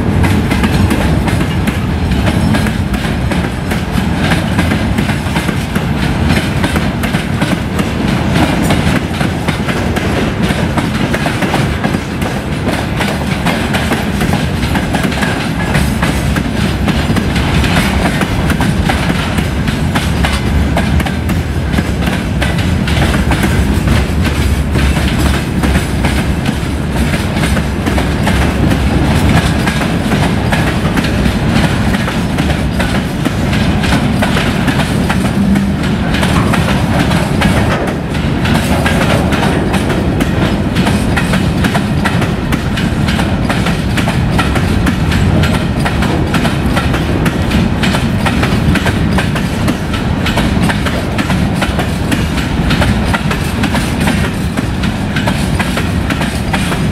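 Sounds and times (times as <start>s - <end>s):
train wheels clattering over rails: 0.0s - 56.9s.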